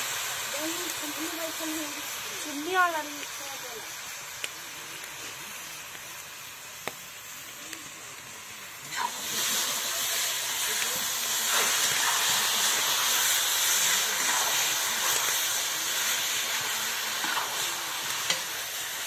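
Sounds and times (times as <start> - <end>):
meat sizzling in hot oil: 0.0 - 19.0
metal spatula scraping wok: 16.5 - 18.6.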